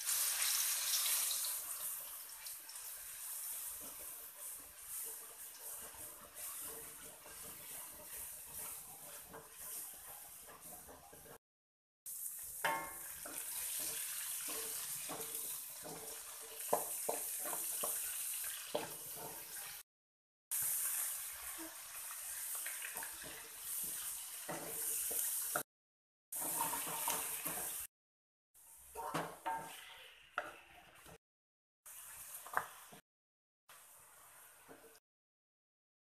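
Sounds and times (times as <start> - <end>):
hot oil sizzling in a wok: 0.0 - 11.4, 12.1 - 19.9, 20.5 - 25.7, 26.3 - 27.9, 31.9 - 33.1
spatula scraping a wok: 3.0 - 11.4, 12.4 - 19.8, 20.6 - 25.7, 26.3 - 27.9, 28.7 - 31.2.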